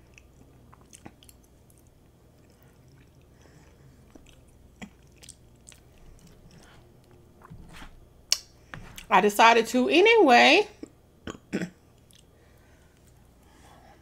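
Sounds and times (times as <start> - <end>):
close-miked chewing: 0.0 - 7.2, 11.9 - 12.3.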